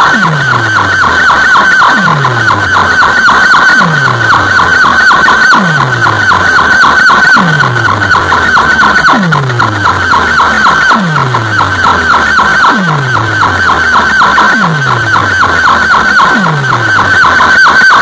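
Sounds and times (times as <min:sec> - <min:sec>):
fast high-pitched electronic chirps: 0:00.0 - 0:18.0
deep falling bass sweep: 0:07.4 - 0:17.3.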